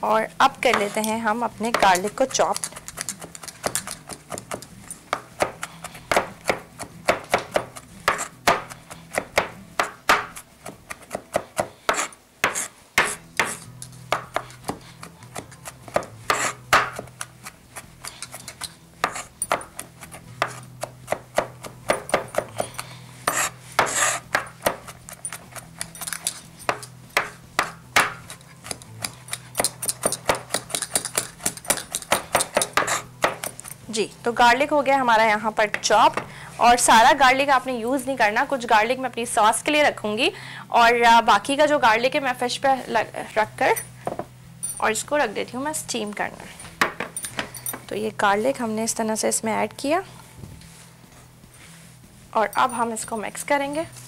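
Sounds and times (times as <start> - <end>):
knife chopping on cutting board: 1.7 - 17.3, 19.0 - 25.0, 26.7 - 33.5.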